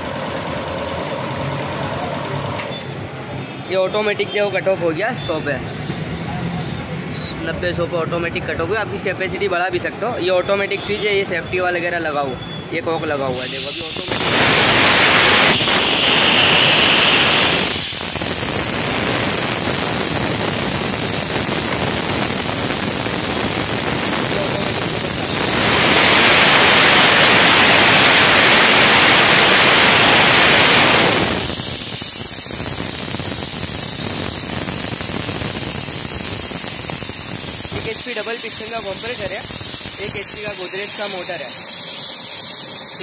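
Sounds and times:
compressed air hissing: 0:13.3 - 0:43.0.

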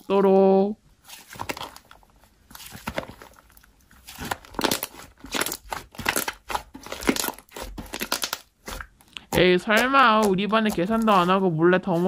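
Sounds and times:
slime sticky clicks and crackles: 0:04.0 - 0:09.3.

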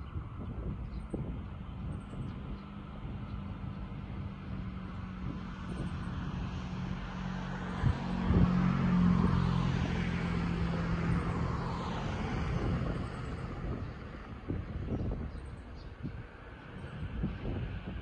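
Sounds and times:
vehicle engine passing by: 0:01.6 - 0:18.0.

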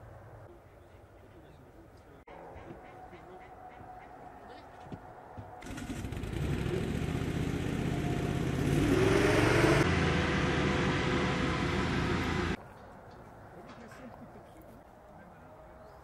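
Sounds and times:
hovercraft engine and propeller: 0:05.6 - 0:12.6.

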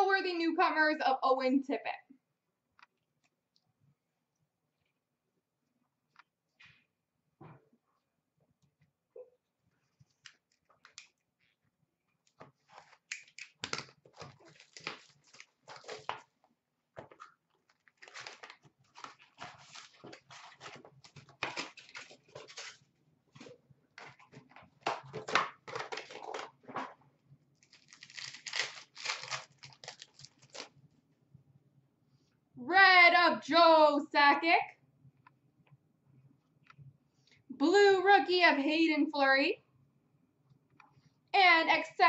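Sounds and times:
wrappers crinkling: 0:12.6 - 0:16.3, 0:17.1 - 0:22.9, 0:27.6 - 0:30.8
card packs tearing: 0:12.8 - 0:16.2, 0:17.8 - 0:22.8, 0:27.6 - 0:30.7.

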